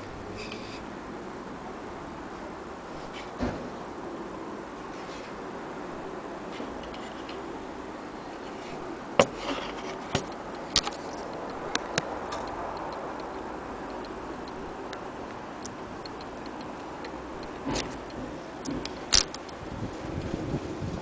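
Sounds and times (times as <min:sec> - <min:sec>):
metallic clicks: 0:10.2 - 0:19.6
clock ticking: 0:10.2 - 0:20.3.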